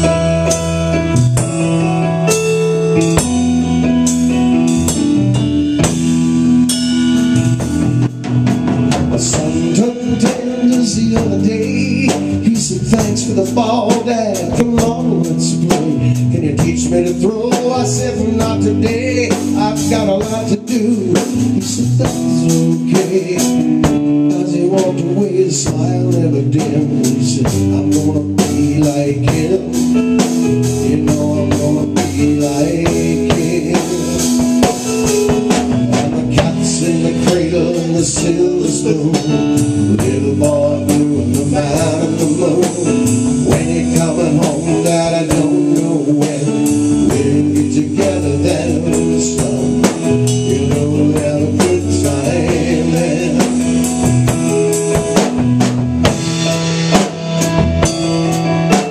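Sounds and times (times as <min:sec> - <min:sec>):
drum kit steady beat: 0:00.0 - 0:58.9
electric keyboard: 0:00.0 - 0:58.9
man singing: 0:08.6 - 0:55.4, 0:56.0 - 0:58.9.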